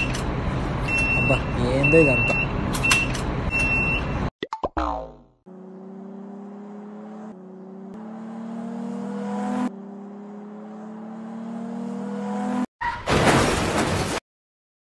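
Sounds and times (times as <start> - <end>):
car engine accelerating: 5.5 - 12.7.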